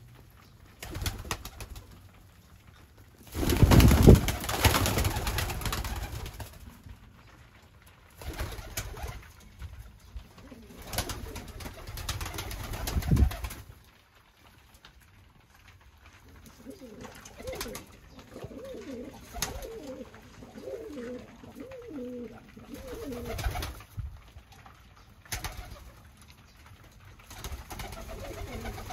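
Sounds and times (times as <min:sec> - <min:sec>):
pigeons cooing: 0:10.2 - 0:13.5, 0:16.4 - 0:23.8, 0:27.5 - 0:28.9.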